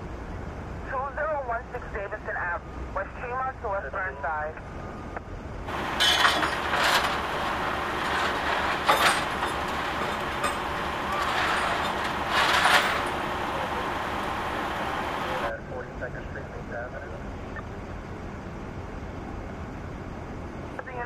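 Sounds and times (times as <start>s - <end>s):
traffic rushing: 5.6s - 15.6s.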